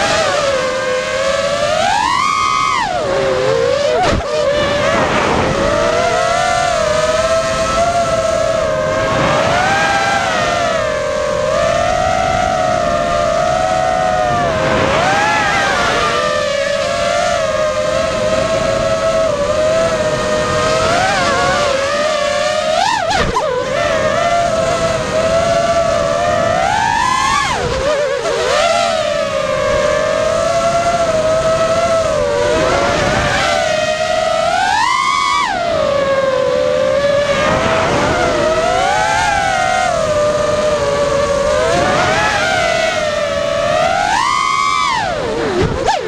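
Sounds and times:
quadcopter motors whining: 0:00.0 - 0:46.0.

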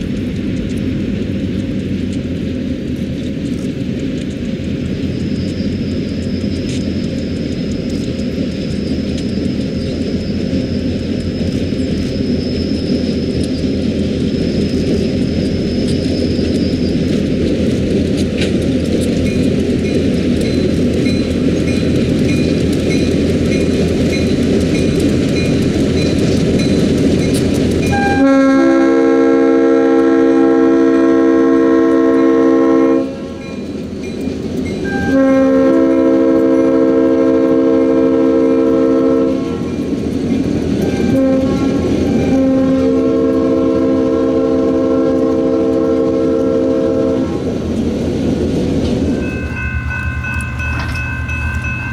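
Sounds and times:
diesel locomotives rumbling past: 0:00.0 - 0:51.9
freight cars rattling on rails: 0:00.0 - 0:51.9
train air horn blasts: 0:27.9 - 0:33.5, 0:34.9 - 0:39.7, 0:41.0 - 0:47.4.

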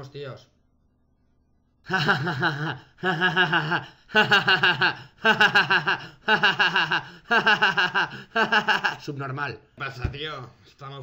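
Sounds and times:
bursts of laughter: 0:01.8 - 0:09.0.

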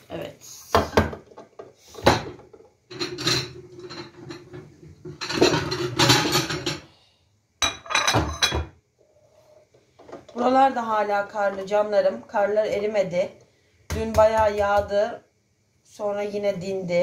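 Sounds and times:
kitchenware clattering and clinking: 0:00.7 - 0:06.9, 0:07.6 - 0:08.8.

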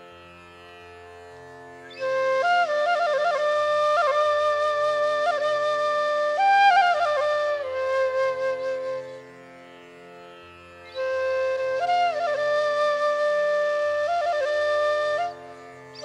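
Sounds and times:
flute melody: 0:01.9 - 0:09.4, 0:10.9 - 0:16.0.

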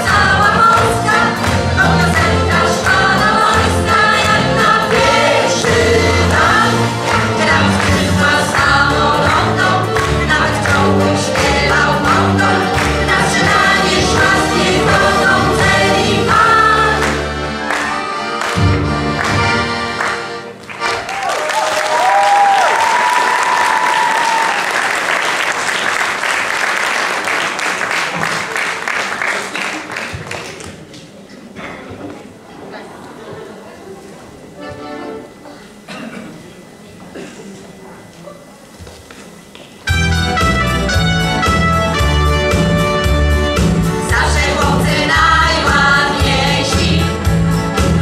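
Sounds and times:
choir singing: 0:00.0 - 0:18.8, 0:44.0 - 0:48.0
accordion: 0:00.0 - 0:21.1, 0:34.6 - 0:35.6, 0:39.9 - 0:48.0
audience applause: 0:19.2 - 0:30.9.

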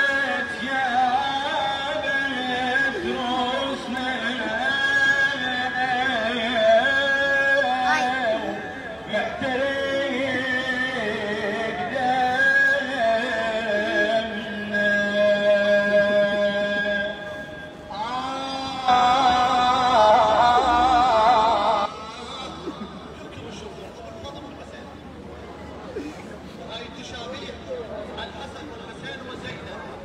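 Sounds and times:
person singing a slow lament: 0:00.0 - 0:22.8.

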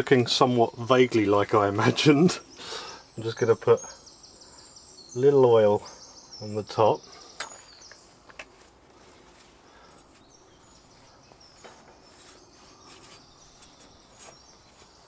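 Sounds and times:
hand rubbing oil on dough: 0:08.5 - 0:15.0.

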